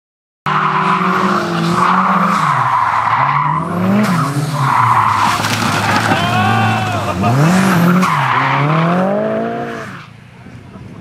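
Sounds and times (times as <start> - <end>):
car engine revving: 0.5 - 10.2
tyres squealing: 1.8 - 8.8.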